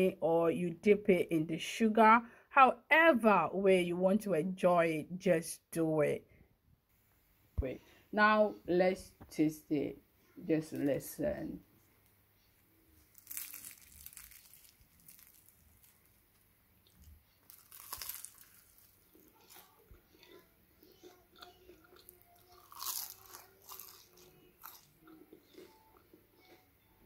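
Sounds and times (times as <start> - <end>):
crackly chewing: 12.5 - 26.8
crisp crunching: 13.0 - 20.3, 21.4 - 24.9.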